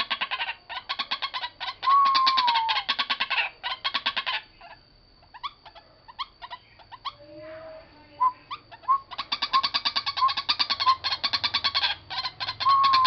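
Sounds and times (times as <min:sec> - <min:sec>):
bird harsh stuttering calls: 0:00.0 - 0:04.7, 0:08.5 - 0:13.0
clear falling whistle: 0:01.9 - 0:02.8
faint high whine: 0:04.4 - 0:10.4.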